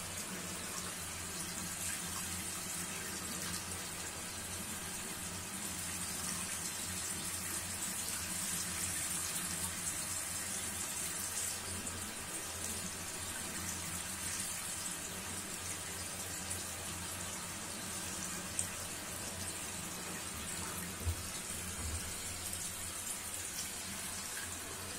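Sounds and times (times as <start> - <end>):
running water rushing: 7.7 - 24.9.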